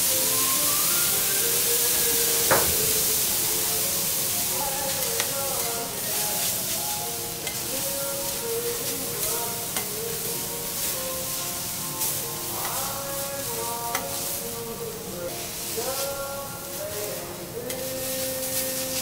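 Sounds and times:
hiss of steam: 0.0s - 19.0s
rice sizzling on a griddle: 0.0s - 19.0s
metal spatulas clacking on griddle: 7.4s - 11.0s, 12.0s - 14.4s, 17.0s - 19.0s.

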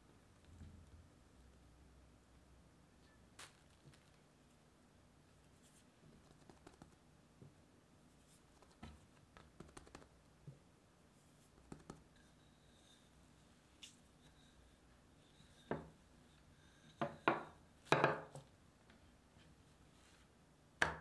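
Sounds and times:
hands pressing bread dough: 8.5s - 10.2s, 11.5s - 12.1s.

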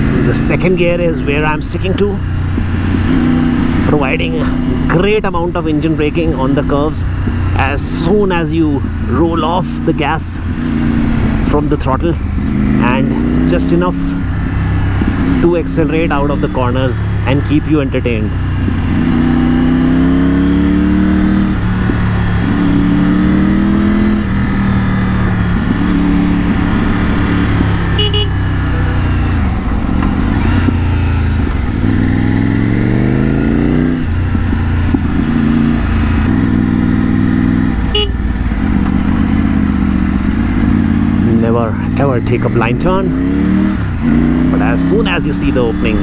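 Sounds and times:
motorcycle engine revving: 0.0s - 46.0s.

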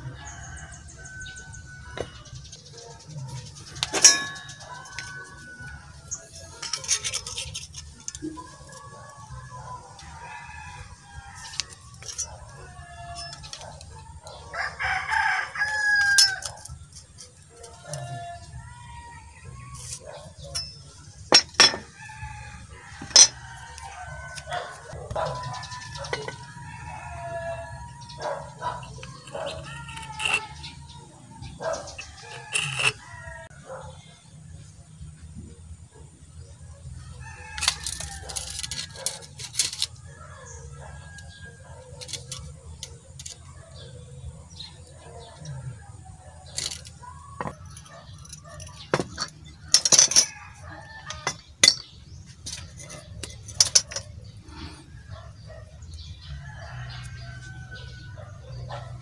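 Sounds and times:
steel tubing clinking on workbench: 3.8s - 5.4s, 15.7s - 18.1s, 19.9s - 22.0s, 23.0s - 23.4s, 46.5s - 50.4s, 51.0s - 54.1s
dog barking: 24.5s - 25.5s, 28.2s - 29.6s, 31.6s - 32.0s, 58.2s - 59.0s.

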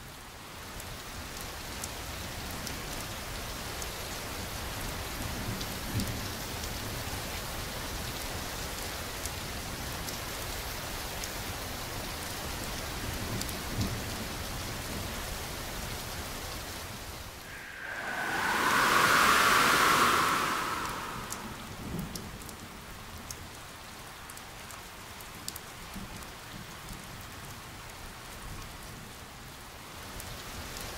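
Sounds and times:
heavy rain: 17.4s - 22.4s.

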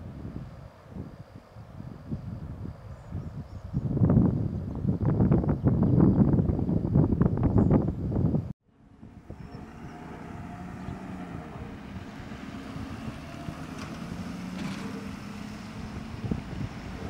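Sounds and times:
wind noise on microphone: 0.0s - 17.0s
pickup truck driving past: 8.7s - 17.0s.

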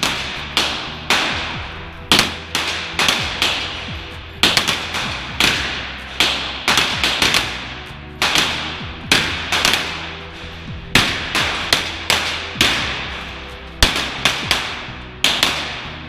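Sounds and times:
pistol shots echoing indoors: 0.0s - 16.0s.

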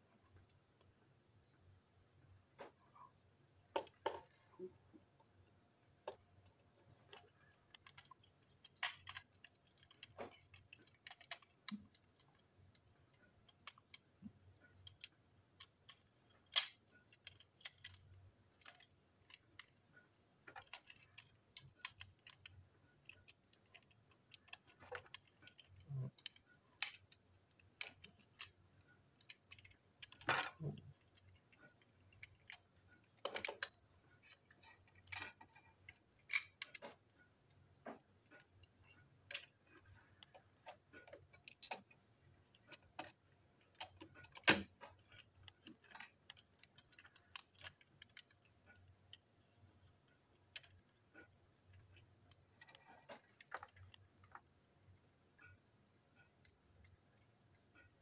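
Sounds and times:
plastic toy parts clicking: 3.7s - 4.7s, 5.4s - 55.7s.

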